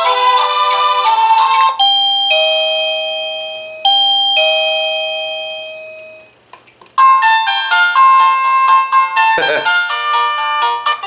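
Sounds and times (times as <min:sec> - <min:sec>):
doorbell two-note chime: 0:01.7 - 0:06.4, 0:07.0 - 0:11.0.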